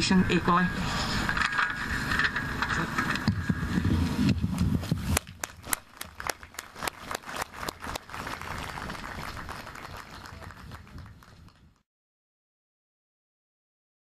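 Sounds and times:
low rumble: 0:00.0 - 0:05.2
small crowd applauding: 0:05.3 - 0:11.8.

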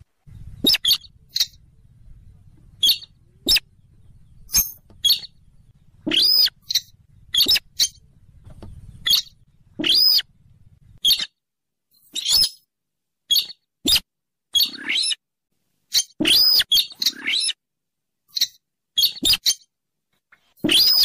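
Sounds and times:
rail bird squeaky calls: 0:00.6 - 0:01.6, 0:02.8 - 0:03.8, 0:04.4 - 0:05.4, 0:06.0 - 0:08.0, 0:08.8 - 0:10.3, 0:11.0 - 0:11.4, 0:12.0 - 0:12.7, 0:13.3 - 0:15.2, 0:15.9 - 0:17.6, 0:18.3 - 0:19.7, 0:20.6 - 0:21.0.

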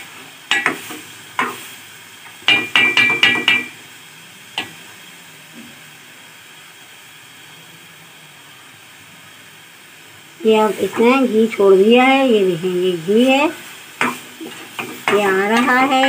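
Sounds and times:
spoon knocking against pot: 0:02.4 - 0:03.8.

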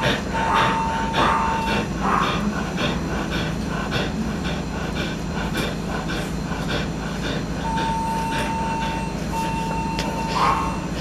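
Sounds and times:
dog panting rapidly: 0:00.0 - 0:11.0
steady electronic beep: 0:07.6 - 0:11.0.

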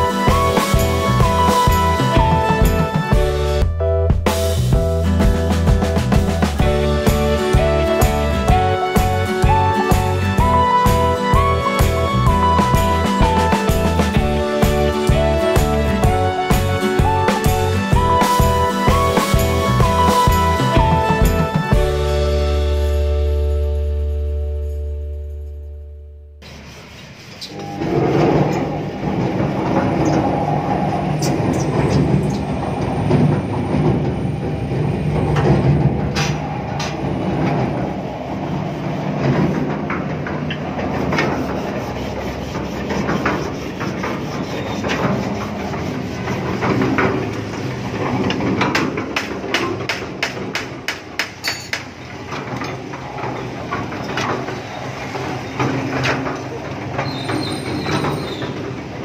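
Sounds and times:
concrete mixer clattering: 0:38.7 - 0:59.0.

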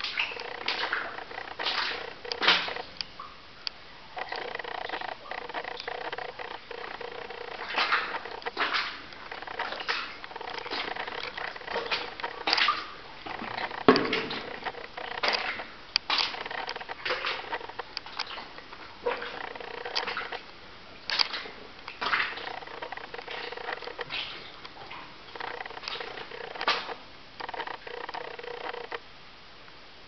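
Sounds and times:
footsteps splashing through water: 0:00.0 - 0:03.0, 0:06.6 - 0:27.0.

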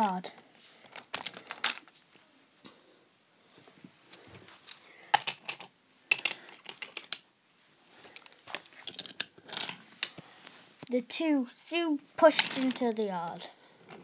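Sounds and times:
wooden toy trains clicking: 0:00.9 - 0:01.9, 0:04.7 - 0:07.2, 0:12.2 - 0:12.9.

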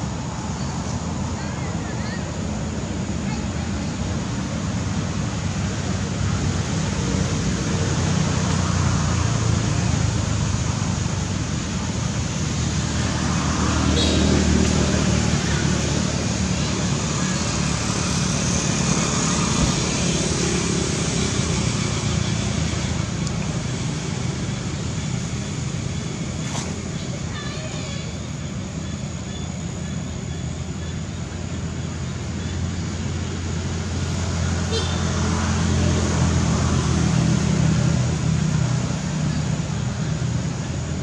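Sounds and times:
traffic rumble and hiss: 0:00.0 - 0:41.0.

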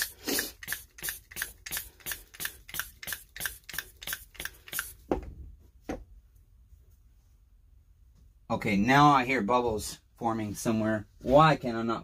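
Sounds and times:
hand pump strokes: 0:00.0 - 0:05.0.

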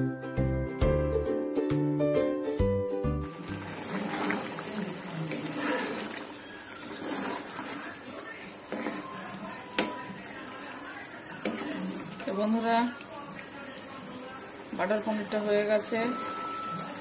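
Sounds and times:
liquid sloshing: 0:03.3 - 0:09.8
sauce bubbling in a pan: 0:03.3 - 0:17.0
spatula stirring and scraping pan: 0:03.3 - 0:17.0.

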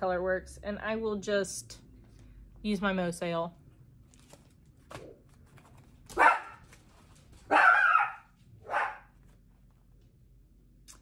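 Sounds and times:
dog barking: 0:06.1 - 0:06.6, 0:07.5 - 0:09.2.

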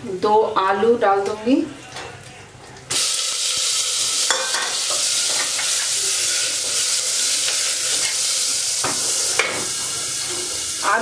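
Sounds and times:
potatoes sizzling in hot oil: 0:02.9 - 0:11.0.

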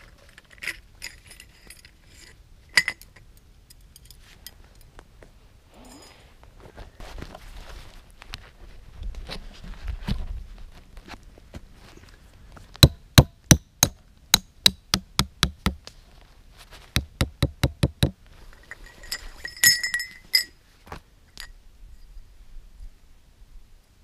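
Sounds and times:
hatchet knocking metal stake: 0:12.8 - 0:15.8, 0:17.0 - 0:18.2
metallic clinks with ringing: 0:18.6 - 0:20.6.

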